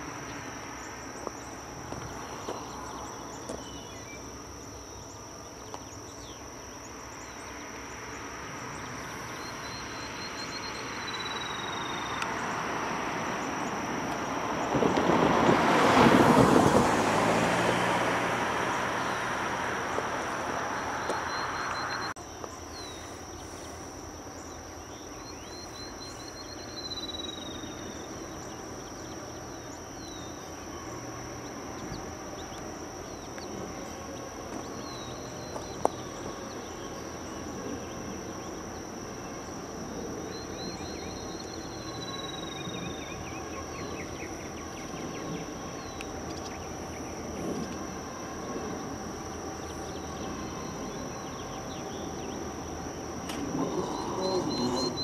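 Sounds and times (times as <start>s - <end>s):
insect drone: 0.0s - 55.0s
songbird trilling: 53.3s - 55.0s.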